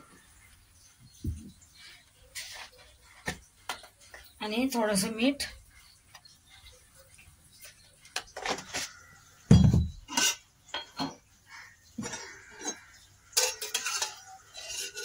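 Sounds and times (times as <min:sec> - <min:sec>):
spoon clinking against metal pot: 0:12.1 - 0:15.0.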